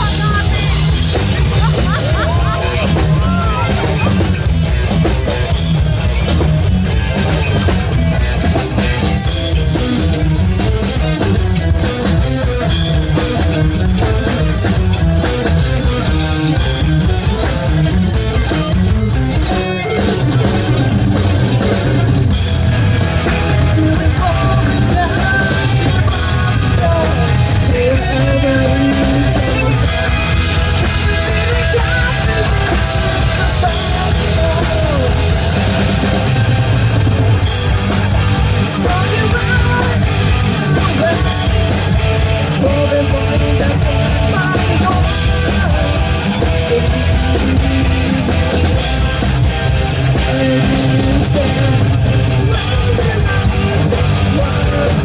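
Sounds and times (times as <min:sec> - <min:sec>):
bass guitar: 0:00.0 - 0:55.0
distorted electric guitar: 0:00.0 - 0:55.0
drum kit: 0:00.0 - 0:55.0
woman singing: 0:23.6 - 0:30.1, 0:30.8 - 0:35.3, 0:38.7 - 0:41.6, 0:42.6 - 0:48.2, 0:50.2 - 0:55.0.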